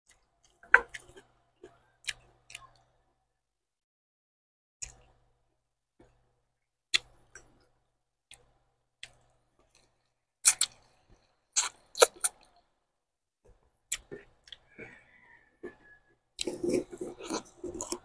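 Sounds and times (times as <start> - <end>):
mouth clicks while chewing: 4.8 - 5.2, 7.0 - 7.6, 8.3 - 10.8, 11.6 - 12.6, 13.5 - 15.0, 16.4 - 18.0
sucking on a bone: 11.6 - 12.5, 13.9 - 18.0.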